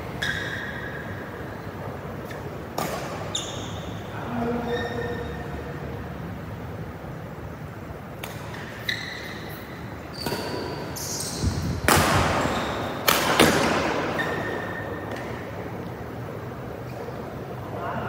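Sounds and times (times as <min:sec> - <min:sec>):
shoes squeaking on court: 0:00.0 - 0:05.6, 0:08.2 - 0:16.0
rackets hitting shuttlecock: 0:02.3 - 0:03.3, 0:08.1 - 0:08.9, 0:11.8 - 0:15.6.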